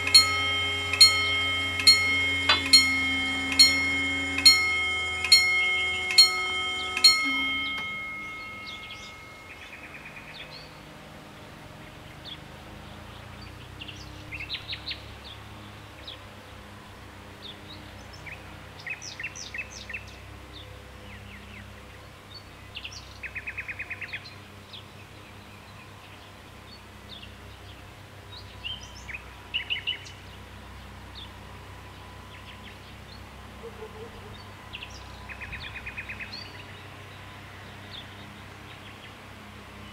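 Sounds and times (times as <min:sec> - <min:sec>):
level crossing bell: 0:00.0 - 0:09.9
birds chirping and trilling: 0:05.3 - 0:10.6.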